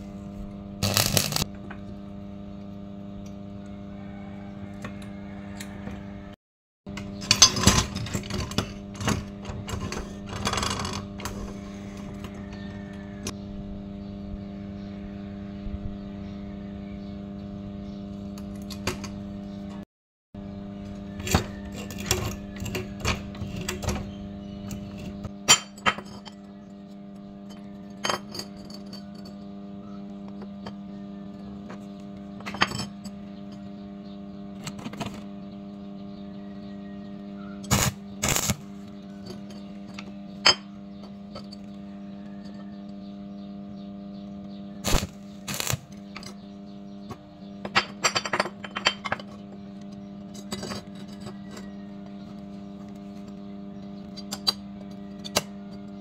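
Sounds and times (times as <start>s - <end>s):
steady hum: 0.0s - 56.0s
metal tubes clinking on workbench: 27.4s - 29.4s, 47.6s - 49.6s.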